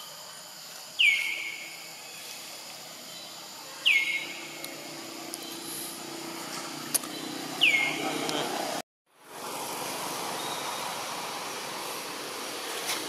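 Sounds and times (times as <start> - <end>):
bird whistle call: 7.1 - 8.0.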